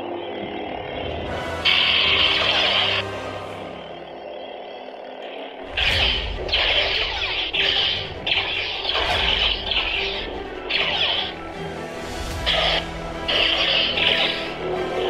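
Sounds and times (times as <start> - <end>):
toy lightsaber hum: 1.6 - 3.2, 12.4 - 15.0
lightsaber blades clashing: 5.6 - 11.5, 12.3 - 15.0.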